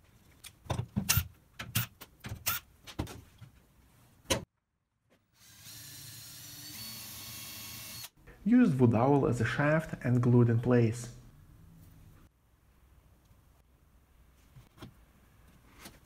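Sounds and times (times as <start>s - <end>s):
cordless drill boring wood: 5.4s - 8.2s.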